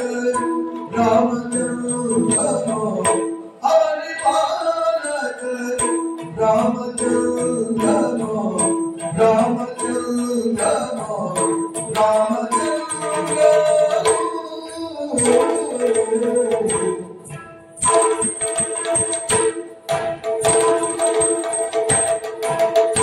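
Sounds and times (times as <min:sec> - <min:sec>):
drum strokes: 0:05.8 - 0:23.0.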